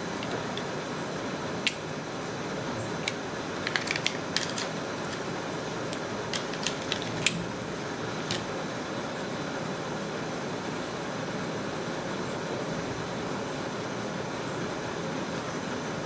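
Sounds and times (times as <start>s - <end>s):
plastic earbuds clicking and tapping: 6.3s - 7.2s.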